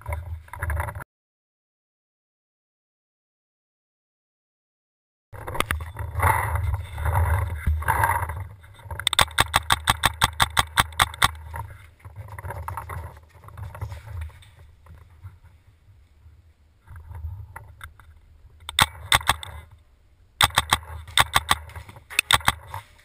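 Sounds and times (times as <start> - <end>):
quiet shuffling: 5.4 - 9.0, 10.7 - 19.9, 20.8 - 23.0
bumps and rustling of movement: 5.4 - 23.0
paintball marker rapid fire: 9.1 - 11.4, 18.7 - 19.5, 20.4 - 22.7.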